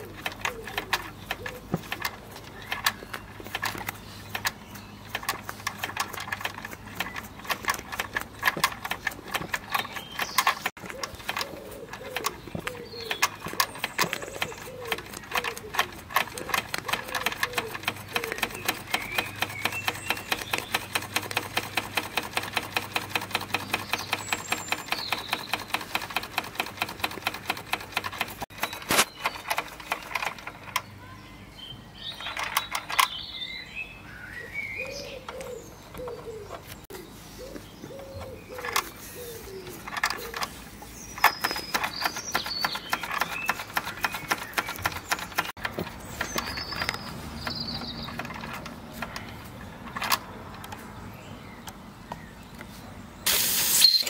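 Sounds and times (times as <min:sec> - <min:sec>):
model steam engine clicking: 0:00.0 - 0:30.9, 0:41.2 - 0:49.3
birds chirping: 0:00.0 - 0:54.0.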